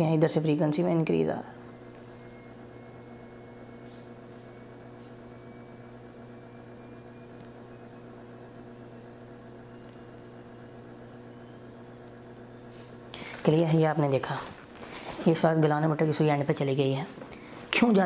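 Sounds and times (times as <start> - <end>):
electrical mains hum: 0.0 - 18.0
thin whine rising in pitch: 1.0 - 14.1.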